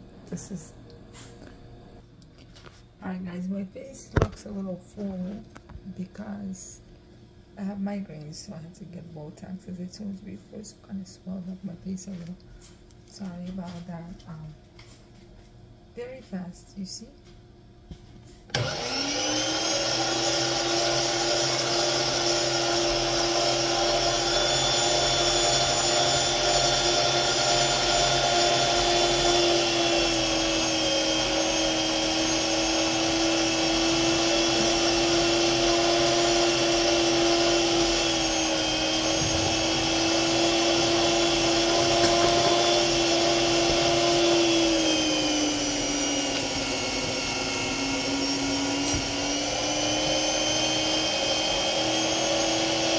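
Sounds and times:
food processor motor whining: 18.5 - 52.9.

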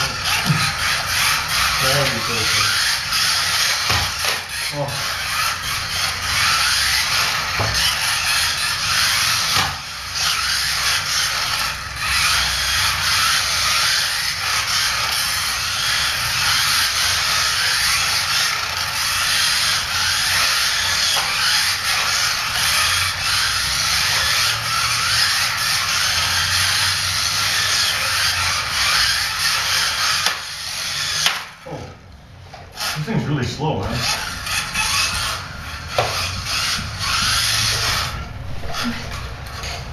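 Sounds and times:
small electric motors whirring: 0.0 - 39.9.

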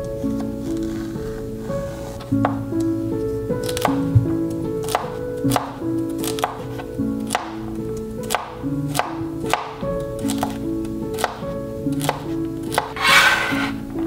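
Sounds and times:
background music with held notes: 0.0 - 14.0
knife chopping celery on board: 12.7 - 13.7.

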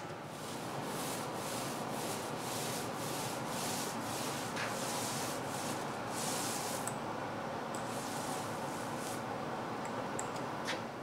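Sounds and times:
paint roller swishing on wall: 0.2 - 6.9, 7.9 - 9.3.

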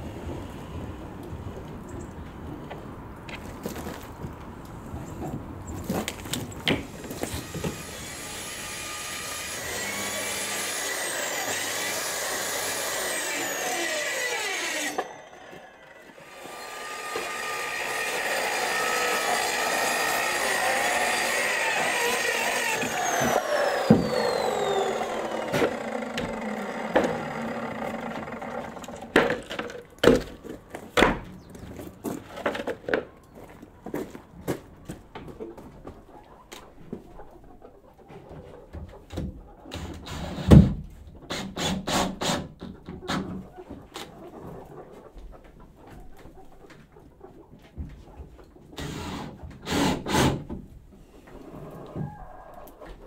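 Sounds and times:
circular saw cutting: 6.9 - 29.2.

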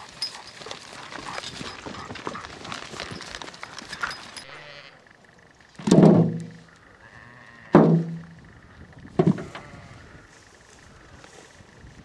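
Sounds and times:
potatoes thunking into metal wheelbarrow: 5.8 - 6.7, 7.8 - 8.4.

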